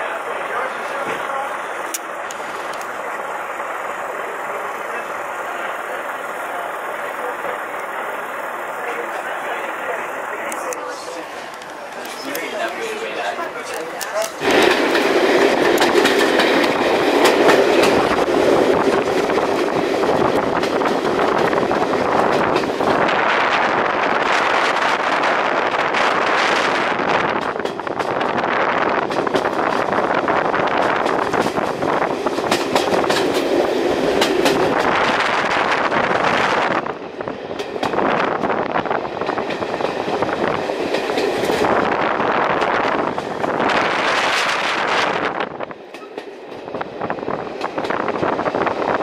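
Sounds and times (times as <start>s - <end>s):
train wheels rumbling on rails: 0.0s - 49.0s
clicks of wheels on rail joints: 13.6s - 18.2s, 27.3s - 28.4s, 29.0s - 35.2s, 37.6s - 38.6s, 45.9s - 46.9s.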